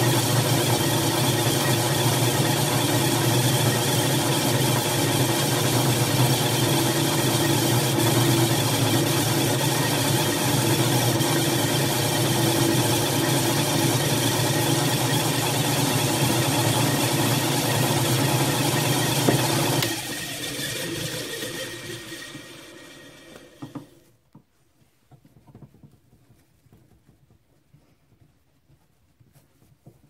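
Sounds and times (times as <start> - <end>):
drill press motor hum: 0.0 - 24.0.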